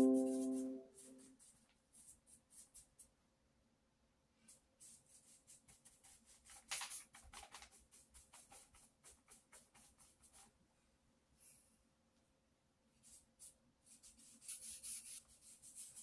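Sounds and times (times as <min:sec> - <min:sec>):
paintbrush strokes on paper: 0:00.0 - 0:03.2, 0:04.4 - 0:10.6, 0:12.9 - 0:16.0.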